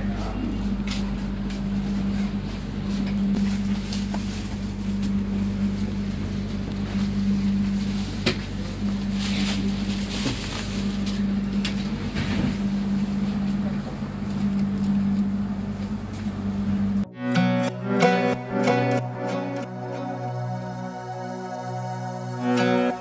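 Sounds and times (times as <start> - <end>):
train carriage hum: 0.0 - 17.1.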